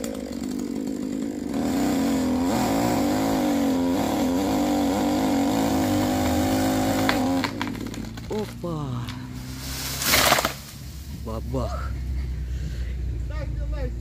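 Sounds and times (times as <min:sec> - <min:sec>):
chainsaw cutting at full throttle: 0:00.0 - 0:11.9
wood snapping: 0:06.9 - 0:09.2, 0:09.8 - 0:10.8.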